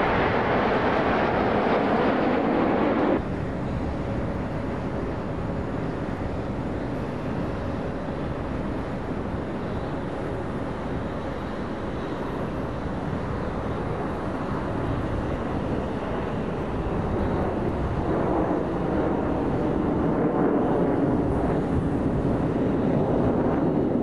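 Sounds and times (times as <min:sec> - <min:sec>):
jet engine roar: 0:00.0 - 0:24.0.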